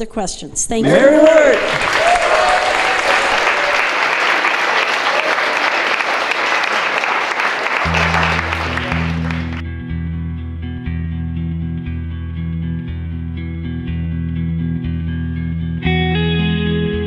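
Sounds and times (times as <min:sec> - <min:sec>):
audience applauding: 0:00.8 - 0:09.6
instrumental music with bass line: 0:07.8 - 0:17.0.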